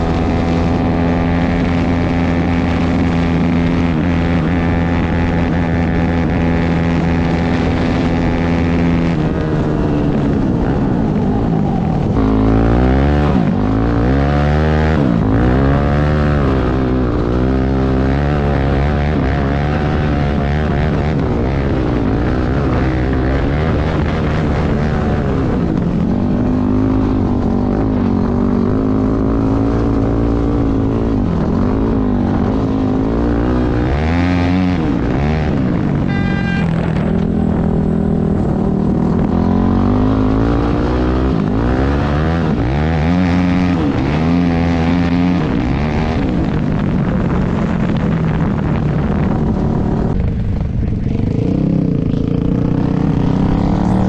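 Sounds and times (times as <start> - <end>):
motorcycle engine accelerating: 0.0 - 54.0
brief high tone: 36.0 - 36.9.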